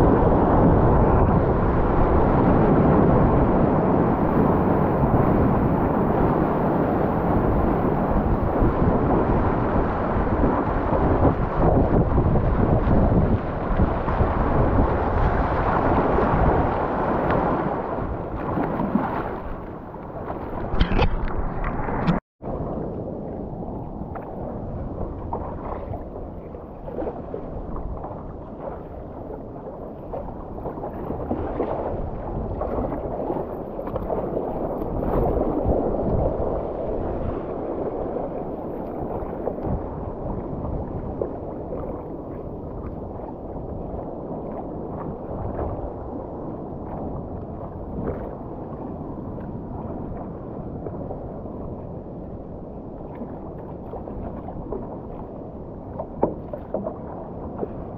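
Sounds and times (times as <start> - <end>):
paddle dipping in water: 9.9 - 22.2, 23.7 - 57.9
water sloshing and splashing: 10.4 - 22.2, 23.7 - 51.2, 52.8 - 57.9.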